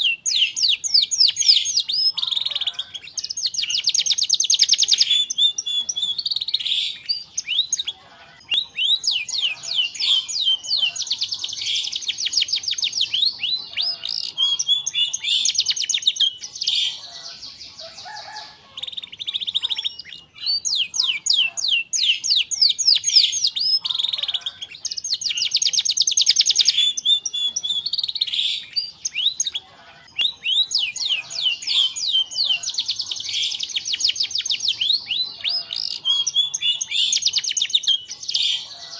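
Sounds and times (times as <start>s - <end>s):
canary singing trills: 0.0s - 38.9s.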